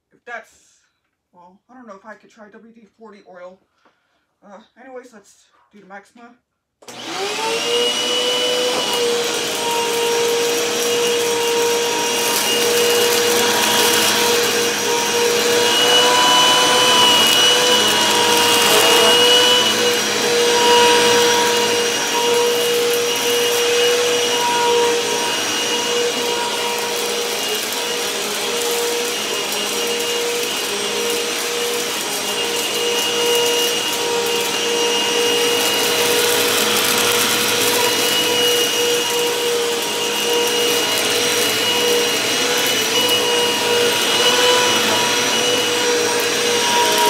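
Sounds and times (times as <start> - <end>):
vacuum cleaner motor whine: 6.8 - 47.0.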